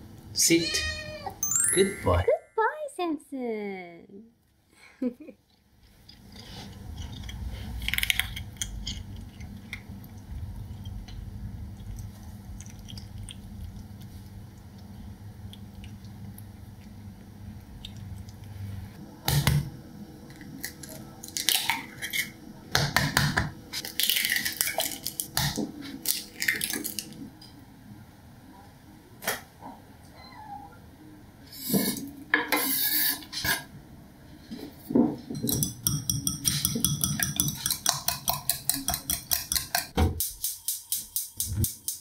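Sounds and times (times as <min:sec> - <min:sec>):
kitten chewing and crunching food: 0:05.6 - 0:18.9
eggs cracking: 0:06.0 - 0:14.8, 0:23.8 - 0:27.2, 0:35.9 - 0:39.9
food clicking against bowl: 0:35.5 - 0:42.0.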